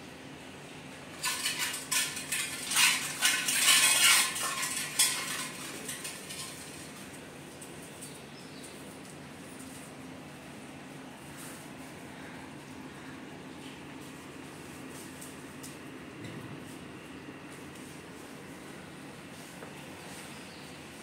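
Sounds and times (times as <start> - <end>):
metal clattering and clinking: 1.1 - 8.8.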